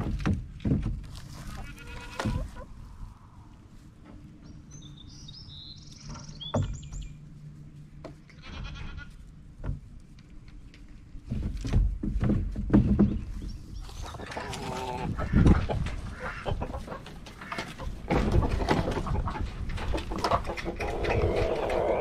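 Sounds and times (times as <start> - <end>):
sharp knocks and clunks: 0.0 - 1.3, 6.0 - 7.2, 9.6 - 9.9, 11.2 - 14.2, 15.4 - 21.2
goats bleating: 1.5 - 2.5.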